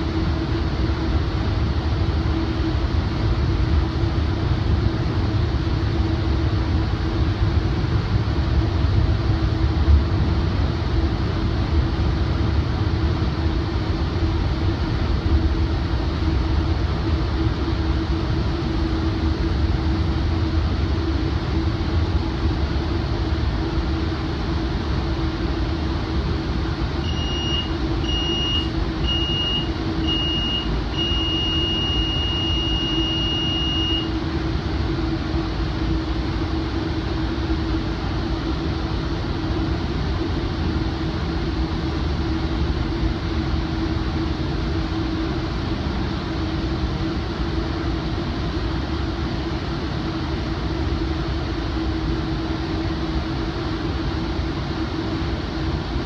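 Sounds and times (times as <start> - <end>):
train rumbling at speed: 0.0 - 56.0
alerter beeps: 27.0 - 34.1
steady warning tone: 27.0 - 34.3.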